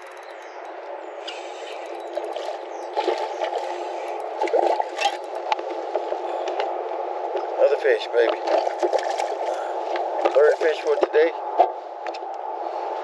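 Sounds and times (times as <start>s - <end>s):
water splashing and gurgling: 1.3s - 6.5s, 8.2s - 10.8s.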